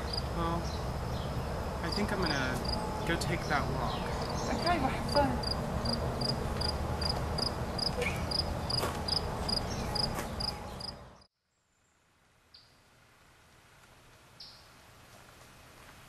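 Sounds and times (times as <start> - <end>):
cricket chirping: 0.0 - 3.1, 5.4 - 11.3
steady outdoor rumble: 0.0 - 11.3.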